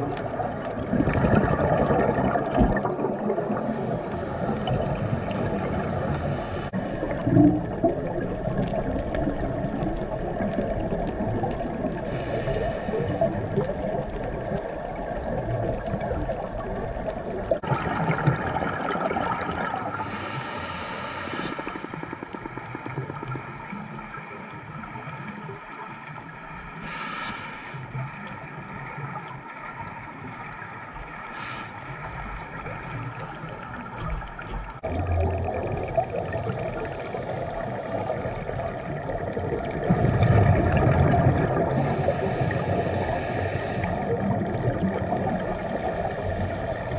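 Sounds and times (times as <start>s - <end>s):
bubbling exhales: 0.0s - 23.6s, 31.3s - 46.9s
regulator hissing inhales: 3.5s - 7.2s, 12.0s - 13.3s, 20.0s - 22.2s, 26.8s - 27.9s, 31.3s - 32.5s, 41.7s - 44.2s, 45.4s - 46.9s.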